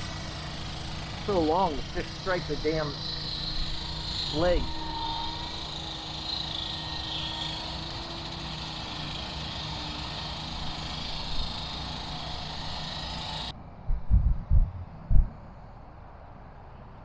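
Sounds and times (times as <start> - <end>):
highway traffic rumble and hiss: 0.0 - 13.9, 14.6 - 17.0
faint droning tone: 1.2 - 8.1.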